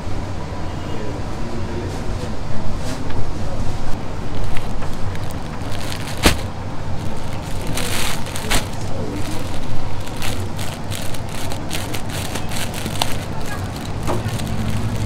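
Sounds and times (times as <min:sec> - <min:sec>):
cloth and plastic crinkling: 0:03.9 - 0:15.0.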